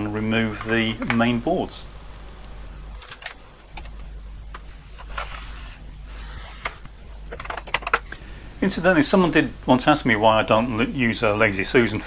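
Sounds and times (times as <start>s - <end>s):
steady low hum: 0.0s - 12.0s
sharp clicks and knocks: 3.0s - 5.4s, 6.6s - 8.2s.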